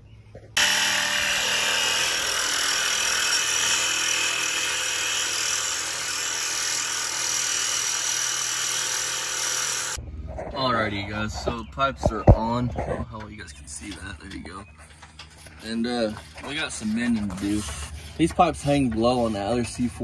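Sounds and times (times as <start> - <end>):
impact wrench running: 0.6 - 10.0.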